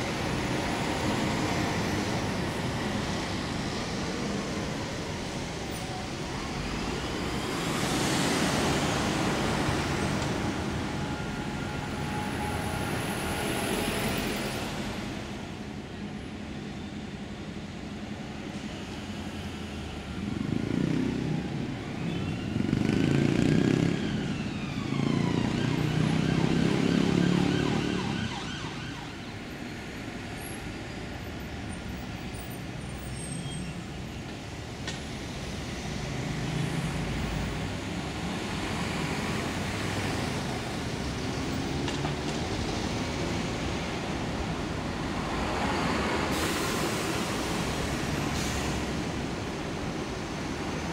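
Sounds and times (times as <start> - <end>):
buses and cars passing: 0.0 - 50.9
siren wailing: 10.5 - 14.0, 23.6 - 29.4
heavy vehicles passing: 18.9 - 33.1, 33.8 - 50.9.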